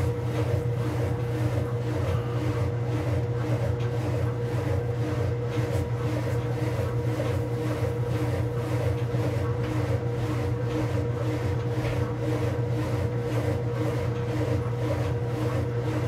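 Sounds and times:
washing machine motor hum: 0:00.0 - 0:16.0.

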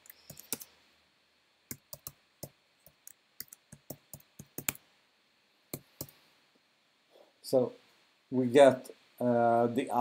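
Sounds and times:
computer keyboard typing: 0:00.0 - 0:00.7, 0:01.7 - 0:04.8.

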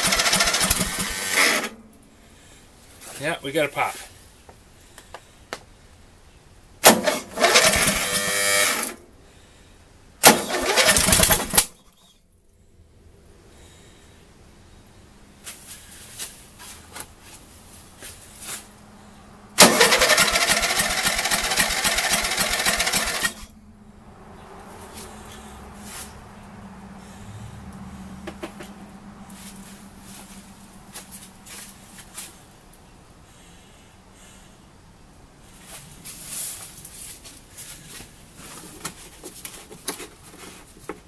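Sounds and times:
electric starter cranking engine: 0:00.0 - 0:01.8, 0:06.8 - 0:09.0, 0:10.2 - 0:11.8, 0:19.6 - 0:23.5.

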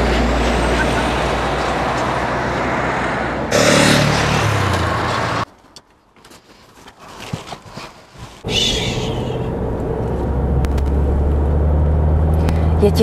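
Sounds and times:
vehicle driving past: 0:00.0 - 0:05.4.

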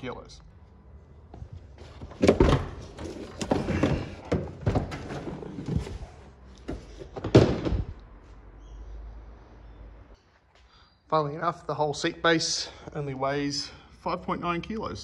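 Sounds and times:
seat thudding on concrete floor: 0:02.0 - 0:06.1, 0:06.7 - 0:08.0.

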